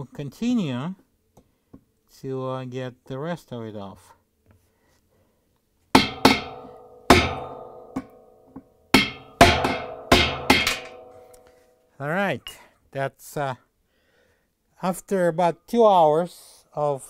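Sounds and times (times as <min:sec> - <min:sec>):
mallet striking chisel on metal: 0:06.0 - 0:11.5
ringing metal tone: 0:06.1 - 0:12.6.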